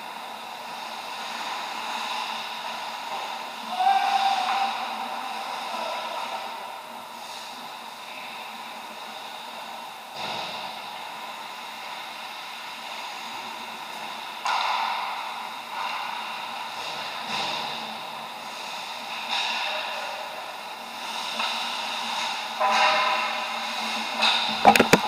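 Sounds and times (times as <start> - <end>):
steady rink hum: 0.0 - 25.0.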